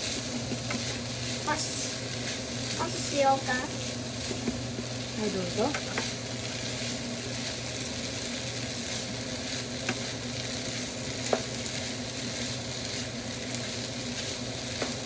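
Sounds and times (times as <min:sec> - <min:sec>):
food sizzling in a frying pan: 0:00.0 - 0:15.0
spatula tapping a pan: 0:00.4 - 0:00.9, 0:09.8 - 0:10.1, 0:11.2 - 0:11.6, 0:14.7 - 0:15.0.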